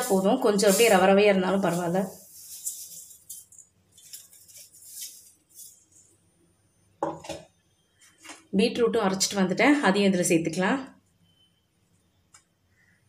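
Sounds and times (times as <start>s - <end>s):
grains pouring into bowl: 0.0s - 3.4s.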